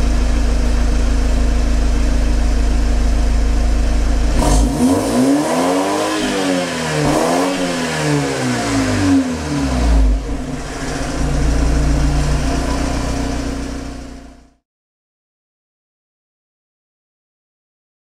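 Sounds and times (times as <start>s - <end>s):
car engine idling: 0.0s - 14.6s
car exhaust throttle blips: 0.0s - 14.6s.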